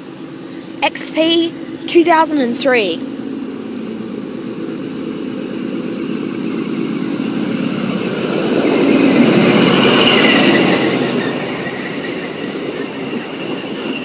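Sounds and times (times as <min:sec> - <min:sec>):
diesel train engine and wheels: 0:00.0 - 0:14.0
high squeal of braking train: 0:04.6 - 0:14.0.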